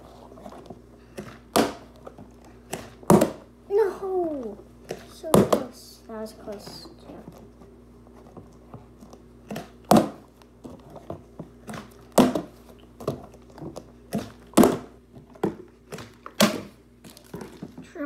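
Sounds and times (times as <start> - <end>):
plastic bottle thunking on wood floor: 11.7 - 13.2.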